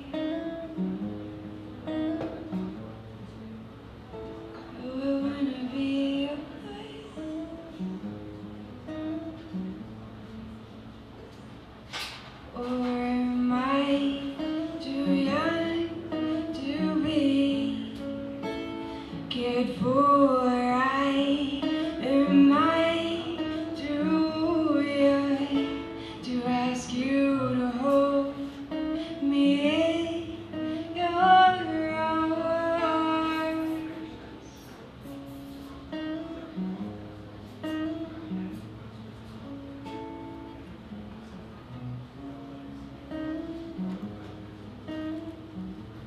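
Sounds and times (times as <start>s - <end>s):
strummed acoustic guitar: 0.0s - 46.0s
woman singing: 4.7s - 7.8s, 12.6s - 34.1s.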